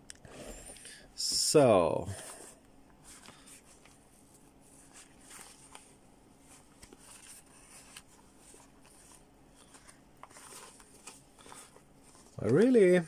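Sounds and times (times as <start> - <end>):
faint cloth rustling: 2.1 - 13.0.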